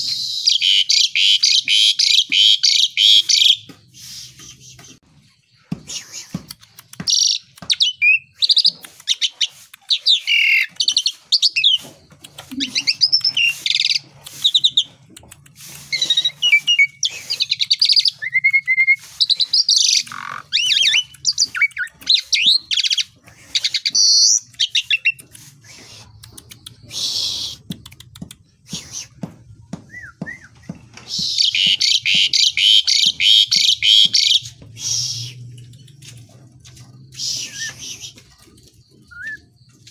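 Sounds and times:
starling singing: 0.1 - 4.9, 15.9 - 25.2, 29.9 - 36.0, 37.1 - 39.9.

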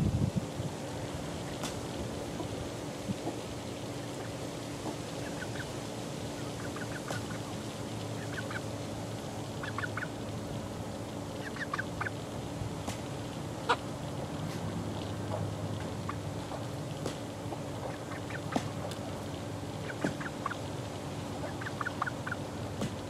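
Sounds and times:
steady low hum: 0.0 - 23.0
chickens peeping: 5.1 - 8.7, 9.6 - 10.2, 11.4 - 12.2, 17.5 - 19.0, 19.8 - 20.7, 21.3 - 22.4.

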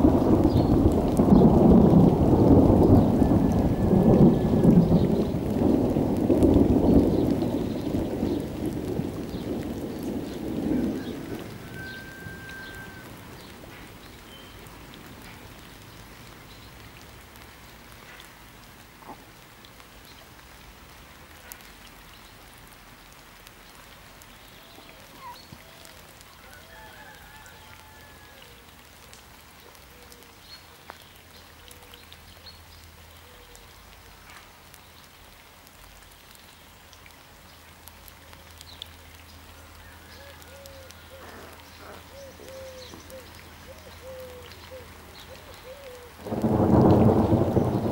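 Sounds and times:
thunder rumbling: 0.0 - 14.0, 45.8 - 47.9
light rain hiss: 0.0 - 47.9.

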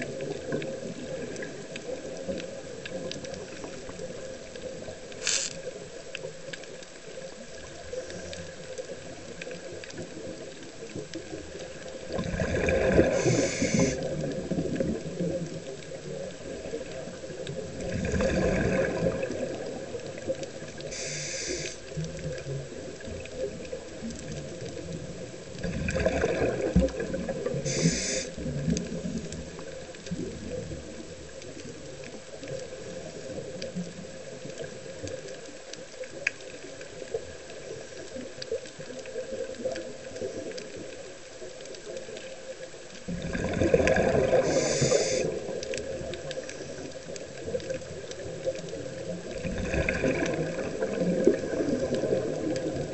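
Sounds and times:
underwater wash: 0.0 - 52.9
exhaled bubbles rushing: 11.3 - 31.3, 43.0 - 46.4, 47.1 - 52.9
air hissing through regulator: 13.1 - 14.0, 20.9 - 21.8, 27.7 - 28.3, 44.4 - 45.3.

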